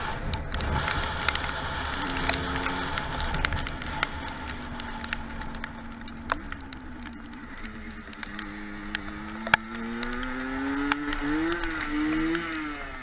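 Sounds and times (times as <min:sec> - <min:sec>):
dirt bike engine: 0:00.0 - 0:13.0
sharp ticks and crackles: 0:00.0 - 0:13.0.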